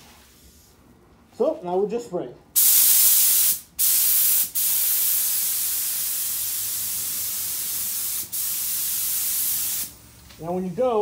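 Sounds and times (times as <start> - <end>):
spray gun hissing: 2.6 - 10.0.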